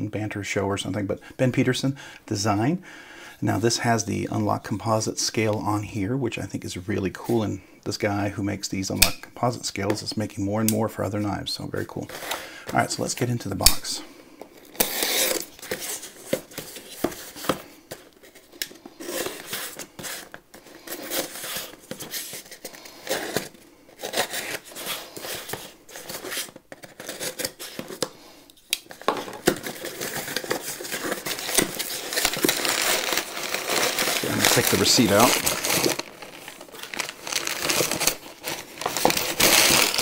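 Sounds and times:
packing paper rustling: 14.6 - 40.0
knife cutting packing tape: 14.7 - 17.6, 23.0 - 28.0.

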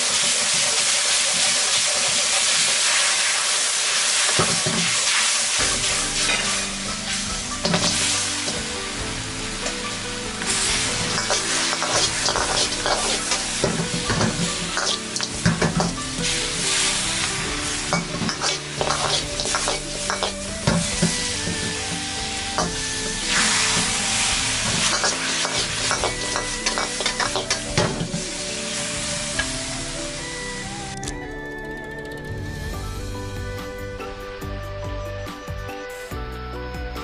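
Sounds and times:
chicken wings sizzling in a wok: 0.0 - 30.8
spatula scraping a wok: 4.2 - 8.7, 10.4 - 22.0, 22.6 - 28.5.

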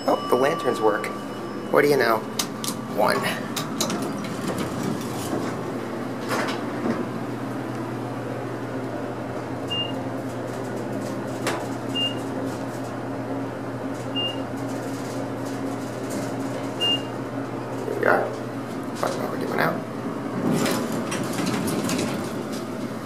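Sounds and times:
elevator machine hum: 0.0 - 23.0
elevator click: 3.5 - 5.6.

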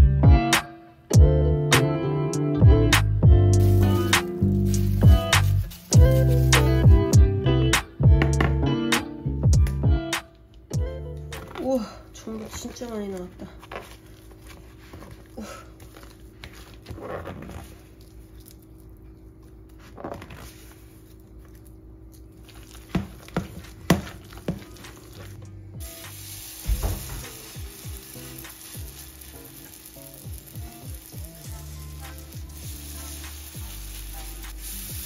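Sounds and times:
batter sizzling in hot oil: 3.6 - 6.8, 25.1 - 35.0.

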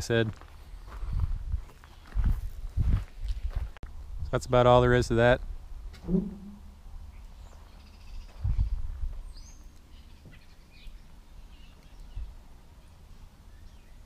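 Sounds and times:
birds chirping: 0.4 - 2.3, 6.0 - 14.0
wind rumble on microphone: 0.9 - 4.6, 8.1 - 9.4
low knock: 6.0 - 6.6.

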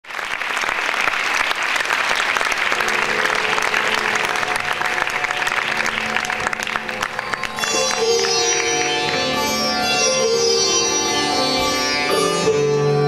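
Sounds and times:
audience applauding: 0.0 - 9.8
drone of held musical notes: 2.8 - 13.0.

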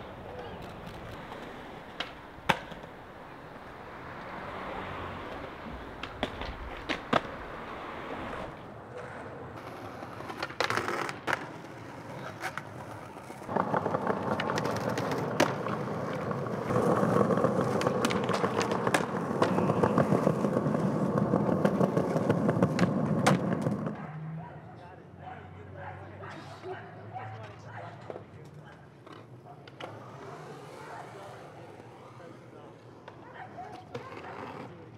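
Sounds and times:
skateboard pops and clacks: 0.3 - 3.0, 5.3 - 7.7, 9.6 - 24.0
wheels rolling over rough concrete: 4.0 - 24.0.

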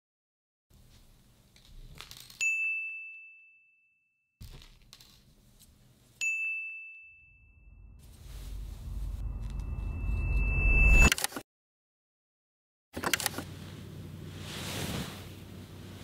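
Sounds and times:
bell-like ding: 2.4 - 4.1, 6.2 - 8.0, 8.8 - 11.1
soft rustling: 13.6 - 16.0.

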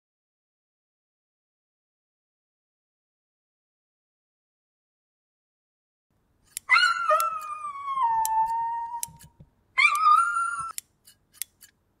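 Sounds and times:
grooming scissors snipping: 6.4 - 7.6, 8.2 - 11.8
small dog whining: 6.7 - 10.8.

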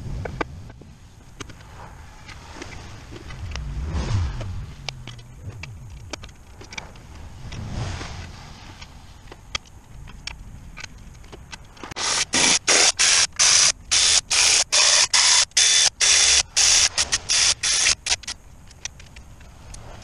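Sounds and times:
pneumatic tool air bursts: 12.0 - 18.3.

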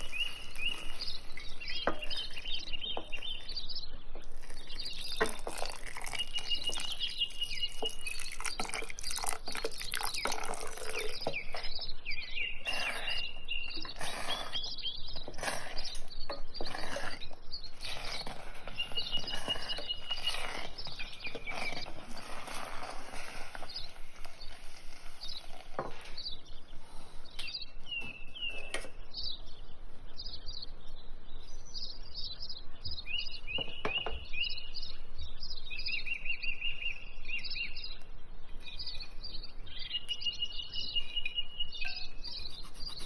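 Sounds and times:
bird trill: 0.0 - 26.7, 38.6 - 43.0
birds chirping: 0.0 - 43.0.

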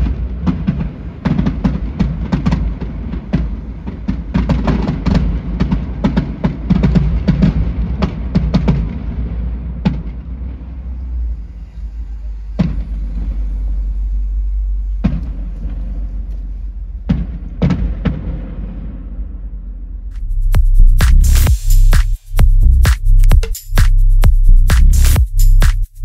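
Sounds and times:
fireworks bangs and crackles: 0.0 - 10.8, 17.1 - 19.3
music: 20.0 - 26.0.

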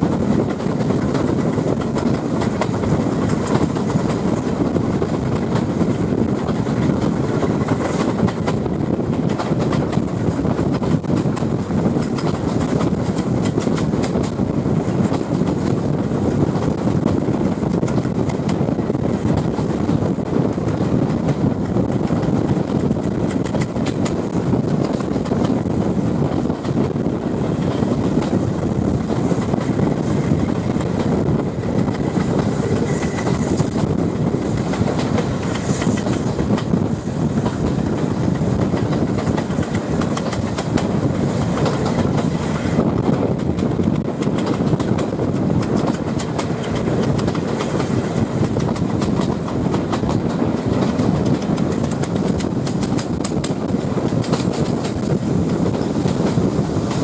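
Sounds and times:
train wheels rumbling on track: 0.0 - 57.0
wind through open window: 0.0 - 57.0.

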